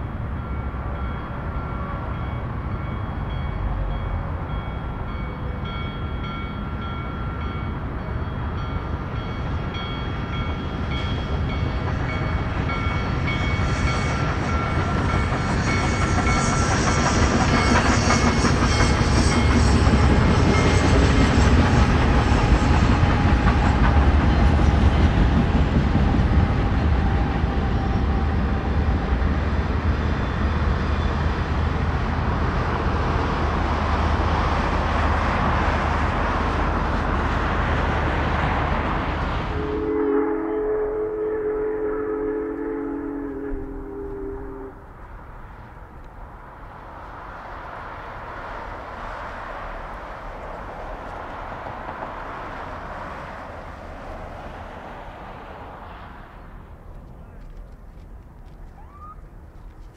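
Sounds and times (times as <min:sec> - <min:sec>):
steam train rumbling by: 0:00.0 - 0:59.9
rail clatter: 0:08.4 - 0:30.3.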